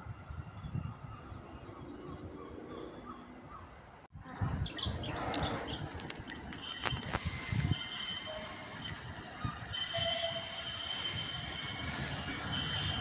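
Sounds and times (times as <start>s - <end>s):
small birds chirping: 0.6s - 10.6s
high thin train squeal: 5.1s - 13.0s
electric train running: 5.7s - 13.0s.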